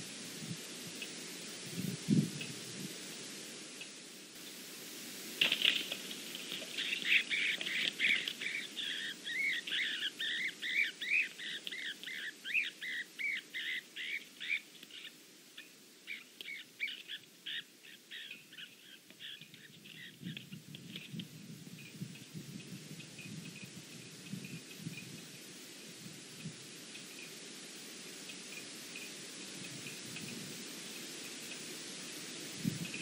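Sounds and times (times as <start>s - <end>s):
flying squirrel squealing: 6.7s - 14.6s.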